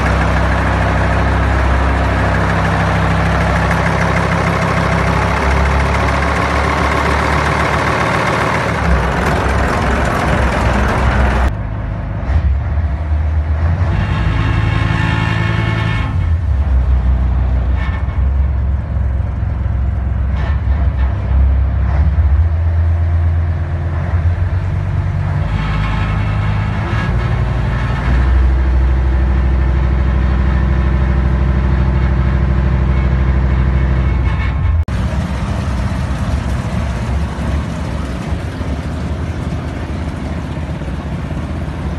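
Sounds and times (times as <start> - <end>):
marine diesel engine droning: 0.0 - 41.9.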